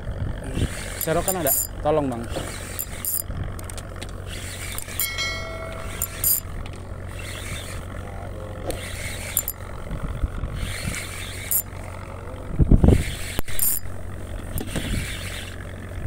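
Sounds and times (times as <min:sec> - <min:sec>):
boat engine hum: 0:00.0 - 0:16.0
fishing reel clicking: 0:01.0 - 0:01.8, 0:02.6 - 0:03.8, 0:08.9 - 0:09.6, 0:11.0 - 0:11.7, 0:13.4 - 0:13.9
bright chime: 0:05.0 - 0:06.5.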